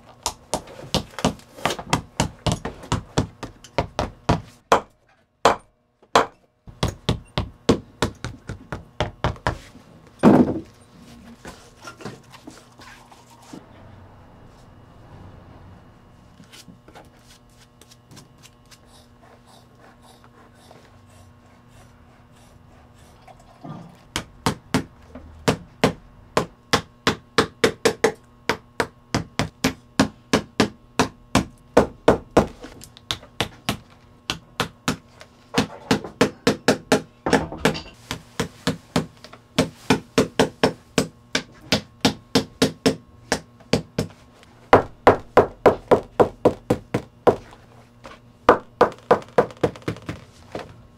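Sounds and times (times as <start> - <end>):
hammer beating leather: 0.2 - 9.6, 24.1 - 47.6, 48.5 - 50.2.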